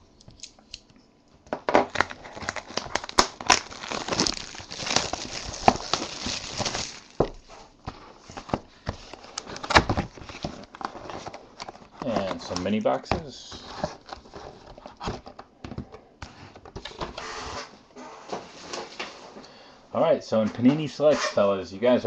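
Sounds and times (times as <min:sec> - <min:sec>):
plastic wrap crinkling: 0:01.7 - 0:13.0.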